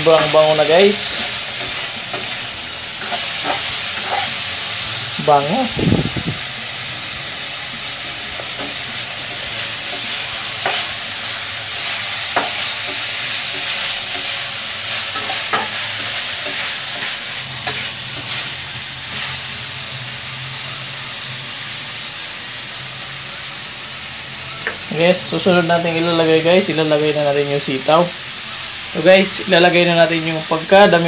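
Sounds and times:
pork sizzling in oil: 0:00.0 - 0:31.0
metal spatula scraping a wok: 0:01.0 - 0:04.6, 0:11.8 - 0:19.4.

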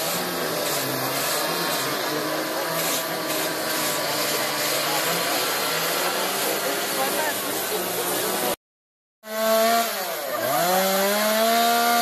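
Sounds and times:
power carving tools on wood: 0:00.0 - 0:08.6, 0:09.2 - 0:12.0.

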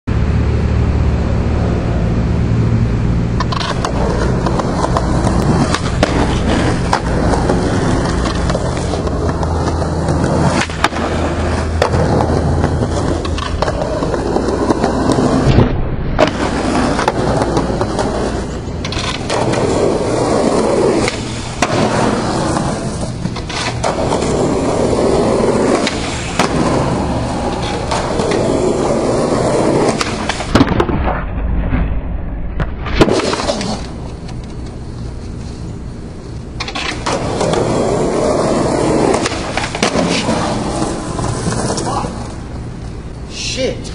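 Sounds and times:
skateboard wheels rumbling on asphalt: 0:00.1 - 0:31.6, 0:32.6 - 0:43.4
skateboard clattering away: 0:03.4 - 0:15.5, 0:16.2 - 0:30.9, 0:36.6 - 0:42.4
skateboard popping and landing clacks: 0:03.4 - 0:31.2, 0:32.9 - 0:34.8, 0:36.4 - 0:42.4.

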